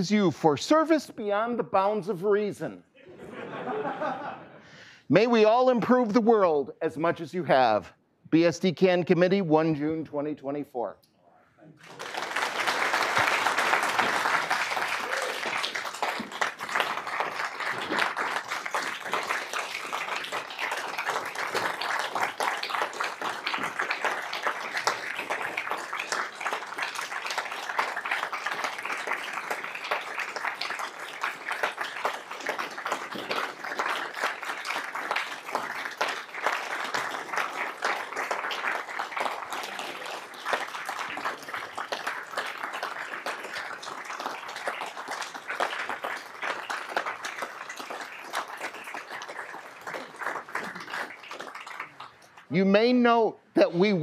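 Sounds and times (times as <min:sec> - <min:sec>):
people applauding: 0:11.7 - 0:52.6.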